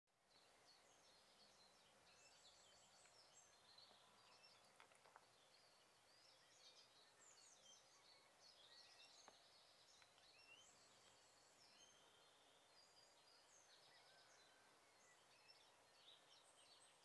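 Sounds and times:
small birds chirping: 0:00.2 - 0:17.0
faint clicks: 0:04.5 - 0:05.3, 0:09.2 - 0:10.4.

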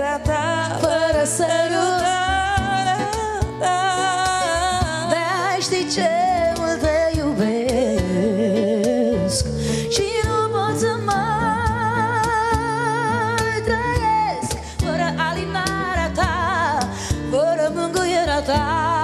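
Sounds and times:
acoustic guitar: 0:00.0 - 0:19.0.

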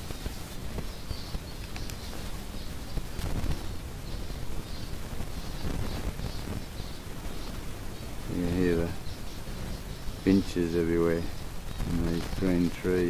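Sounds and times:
finches chirping: 0:00.0 - 0:13.0.

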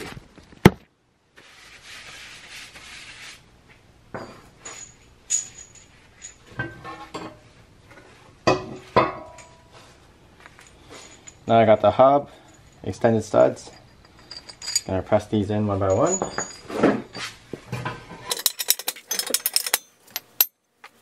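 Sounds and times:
metal parts clinking: 0:04.2 - 0:07.4, 0:12.3 - 0:20.6.

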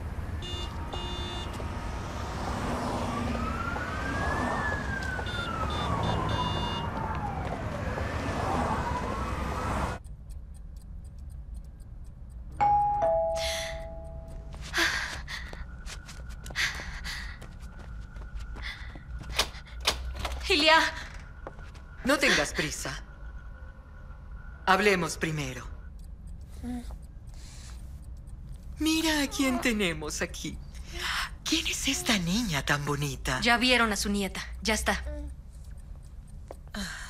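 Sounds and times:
siren wailing: 0:00.0 - 0:10.0, 0:14.8 - 0:26.0, 0:28.8 - 0:30.2
footsteps: 0:06.8 - 0:07.8, 0:14.3 - 0:19.7, 0:21.0 - 0:21.9
two-note doorbell: 0:12.6 - 0:14.3.

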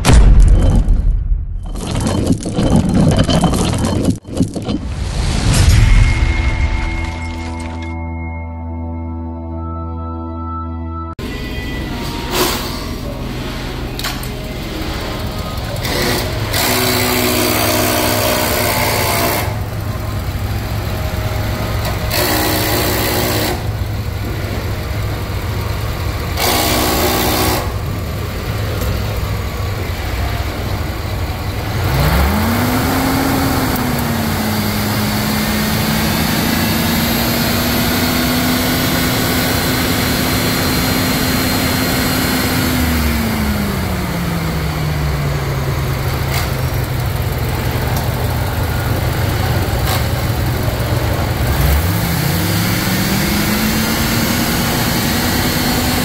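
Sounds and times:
truck engine idling and revving: 0:11.2 - 0:56.0.

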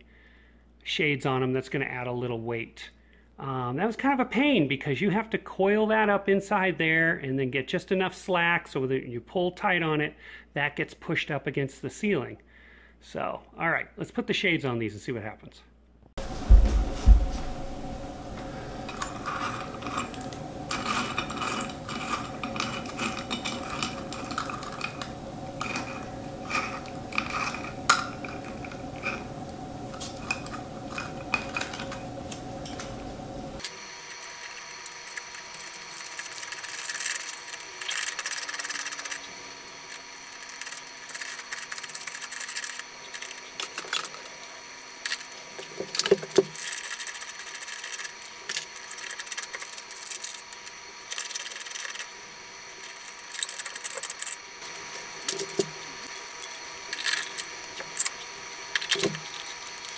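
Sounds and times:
faint steady hum: 0:16.2 - 0:59.9.

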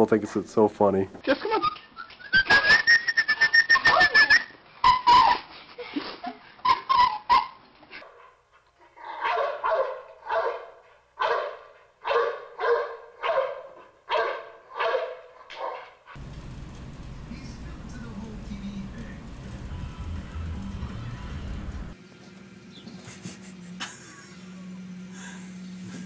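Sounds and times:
dog barking: 0:09.0 - 0:16.2.

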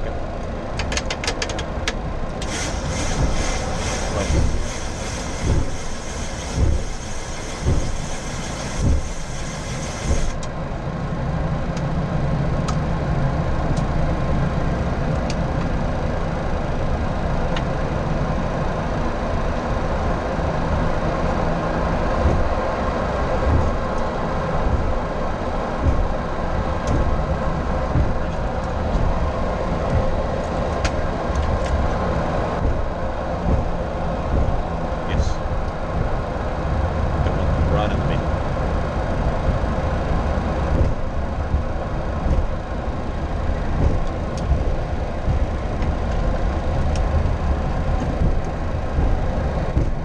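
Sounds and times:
aircraft engines idling rumble: 0:00.0 - 0:50.0
high hiss: 0:02.4 - 0:10.4.

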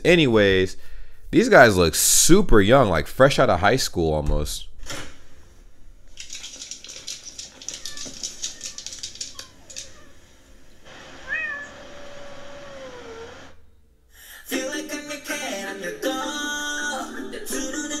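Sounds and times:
soft clicking and rustling: 0:06.1 - 0:10.2
cat meowing: 0:07.6 - 0:10.3, 0:11.0 - 0:13.4.

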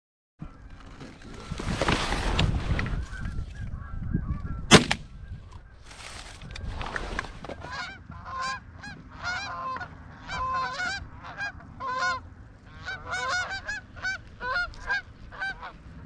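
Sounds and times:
geese honking: 0:03.0 - 0:06.6, 0:07.4 - 0:16.0.

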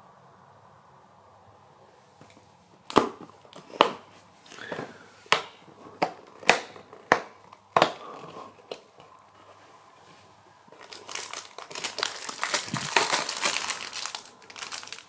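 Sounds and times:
soft cardboard scraping: 0:08.0 - 0:10.6.

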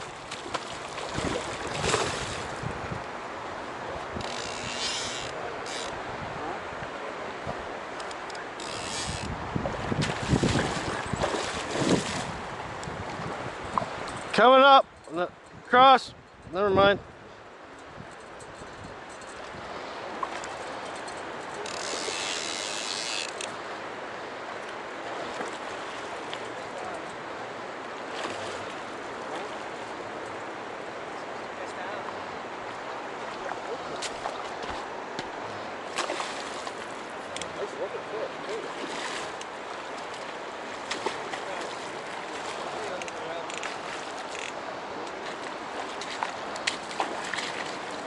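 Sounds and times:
fish splashing and thrashing: 0:00.0 - 0:02.6, 0:09.9 - 0:12.4, 0:35.8 - 0:37.6, 0:38.5 - 0:44.6, 0:45.2 - 0:48.0
river water rushing: 0:00.0 - 0:15.4, 0:17.1 - 0:48.0
wind on microphone: 0:00.8 - 0:05.3, 0:05.9 - 0:07.9, 0:08.6 - 0:20.3
fishing reel spinning buzz: 0:04.2 - 0:06.0, 0:08.5 - 0:09.3, 0:21.6 - 0:23.5.

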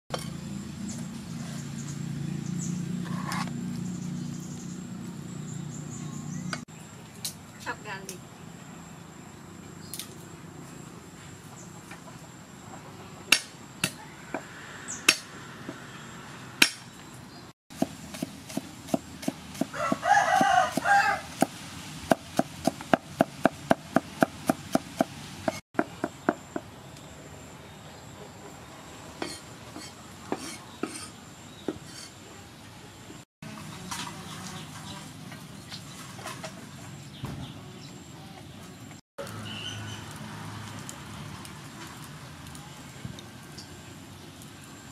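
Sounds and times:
cleaver chopping on wooden board: 0:16.6 - 0:16.8, 0:17.8 - 0:21.5, 0:22.1 - 0:26.4
rooster crowing: 0:19.6 - 0:21.4.

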